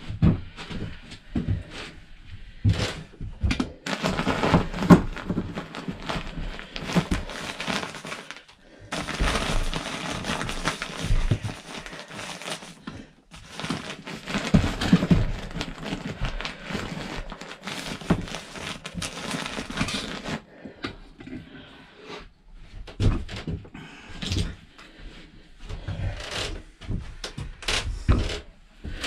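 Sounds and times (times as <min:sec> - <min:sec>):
insulation rustling and crackling: 0:00.0 - 0:20.7.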